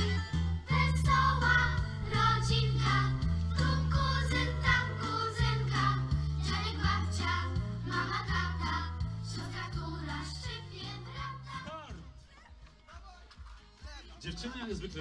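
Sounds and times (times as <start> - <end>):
children singing: 0.7 - 11.6.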